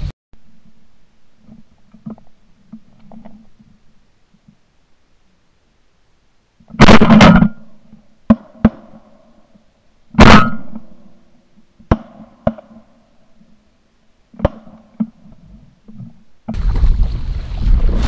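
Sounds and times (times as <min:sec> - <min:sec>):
shotgun blasts: 0:06.8 - 0:07.6, 0:10.2 - 0:11.0, 0:11.9 - 0:12.8.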